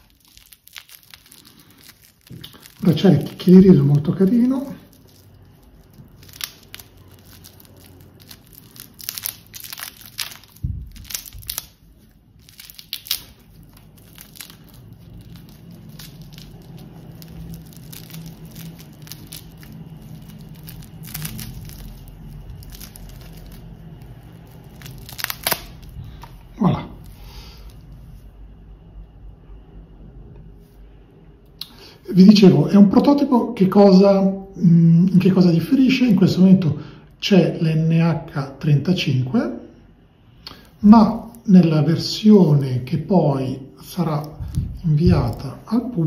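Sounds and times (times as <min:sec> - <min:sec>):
plastic film crinkling and tearing: 0:00.0 - 0:28.1, 0:40.5 - 0:42.9, 0:43.8 - 0:46.0.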